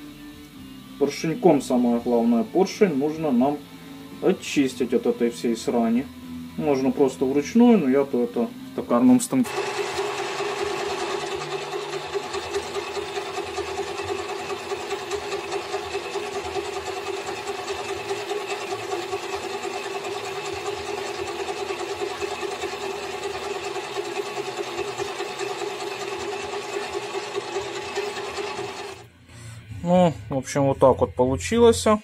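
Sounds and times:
lathe motor hum: 9.4 - 29.1
scrubbing pad rasping on metal: 9.5 - 29.0.

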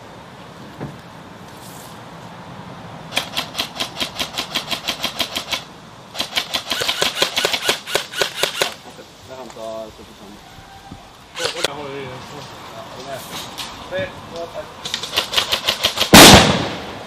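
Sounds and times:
airsoft rifle full-auto bursts: 3.1 - 8.8.

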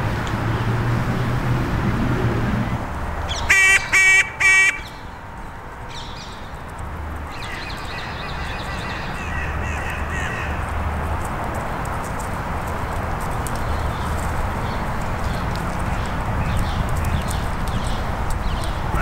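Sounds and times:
crow cawing: 3.4 - 5.0, 8.4 - 10.7.

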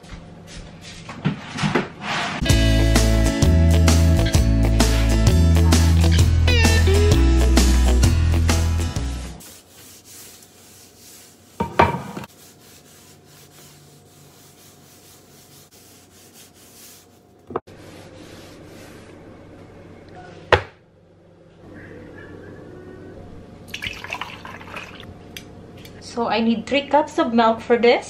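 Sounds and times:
paper towel wiping countertop: 0.5 - 2.4, 9.4 - 19.2
background music: 2.4 - 9.4
cutting board set down: 11.6 - 12.3.

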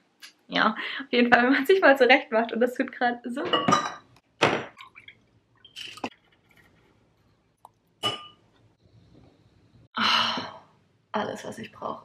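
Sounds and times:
utensils clinking on ceramic bowl: 8.0 - 8.4.

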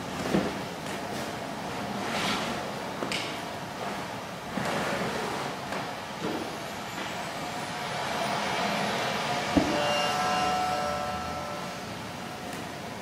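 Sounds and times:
street traffic: 5.6 - 13.0
faint steady whine: 6.3 - 13.0.

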